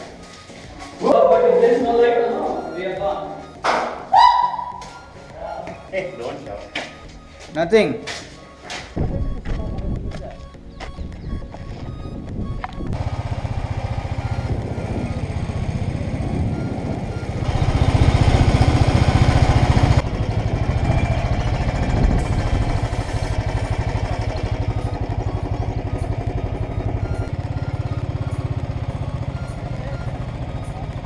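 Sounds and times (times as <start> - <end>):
motorcycle engine running: 10.8 - 31.0.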